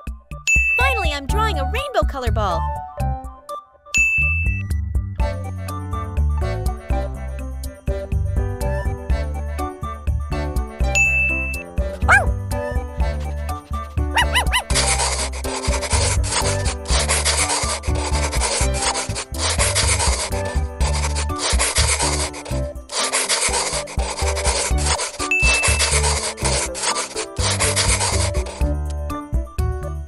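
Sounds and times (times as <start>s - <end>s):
high beep: 0.5s - 0.9s
marker scratching on paper: 12.0s - 12.3s, 14.1s - 28.8s.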